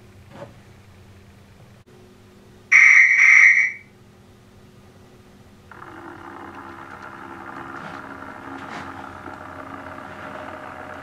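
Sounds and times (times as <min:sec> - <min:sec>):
shrill railway whistle: 0:02.7 - 0:03.9
model train mechanical running: 0:05.7 - 0:11.0.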